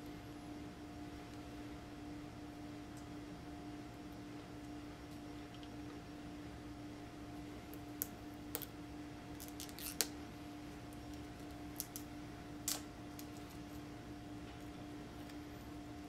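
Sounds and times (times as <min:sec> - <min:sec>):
plastic shrink-wrap crackling: 0:09.4 - 0:10.2.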